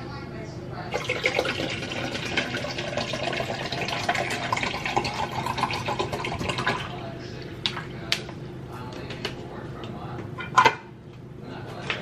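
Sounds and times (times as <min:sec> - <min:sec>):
water pouring over ice: 0:01.0 - 0:06.8.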